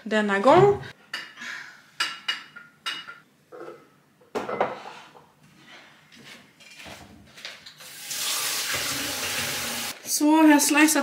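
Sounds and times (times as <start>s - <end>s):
glass clinking: 2.0s - 3.2s.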